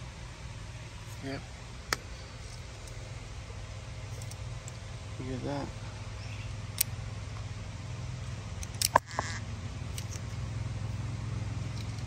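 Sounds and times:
steady low hum: 0:00.0 - 0:12.0
clicks and knocks from handling parts: 0:08.6 - 0:09.3, 0:09.9 - 0:10.4, 0:11.6 - 0:12.0.

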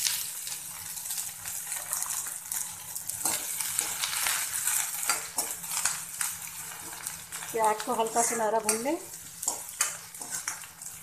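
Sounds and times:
onions sizzling in hot oil: 0:00.0 - 0:11.0
spoon scraping and knocking pan: 0:03.2 - 0:06.0, 0:07.7 - 0:11.0.

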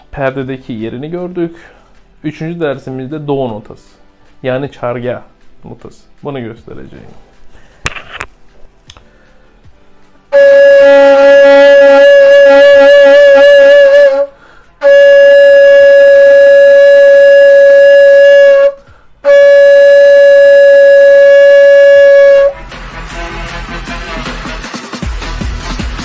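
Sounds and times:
quiet background music: 0:00.0 - 0:24.5
reed flute long tones: 0:10.3 - 0:22.6
flute player breaths: 0:14.3 - 0:14.8, 0:18.8 - 0:19.2.

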